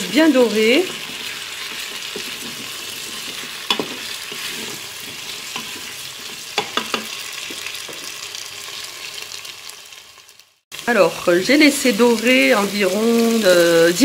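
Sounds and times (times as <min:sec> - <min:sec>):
potatoes sizzling in oil: 0:00.0 - 0:14.0
spatula scraping a pot: 0:00.7 - 0:08.1.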